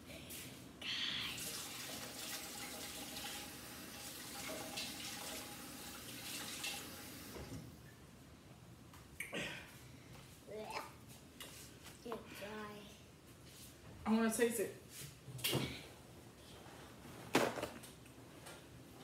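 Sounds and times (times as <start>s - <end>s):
water running from faucet: 1.4s - 7.5s.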